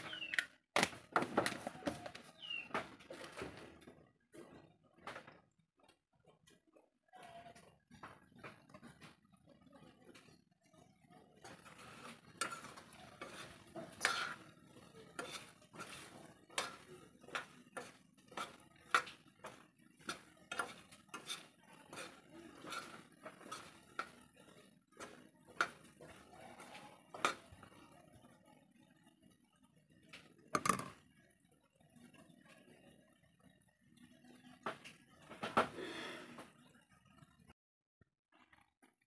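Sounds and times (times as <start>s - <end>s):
metal spoon scraping wok: 11.4s - 27.7s.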